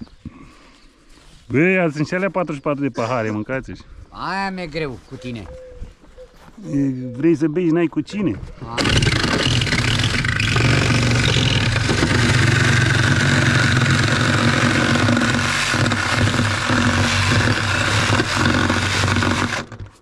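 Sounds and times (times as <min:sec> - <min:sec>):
reciprocating saw cutting metal sheet: 0:08.8 - 0:20.0.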